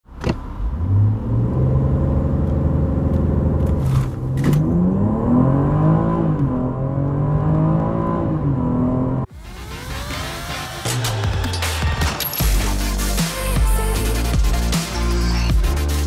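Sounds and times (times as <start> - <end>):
car engine revving: 0.4 - 12.0
car accelerating at full throttle: 0.5 - 9.9.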